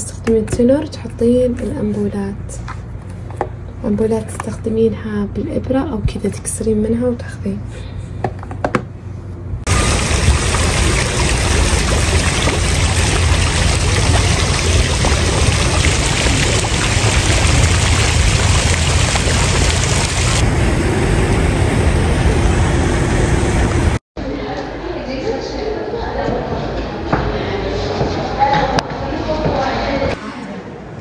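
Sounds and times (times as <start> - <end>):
fountain water splashing: 9.7 - 24.0.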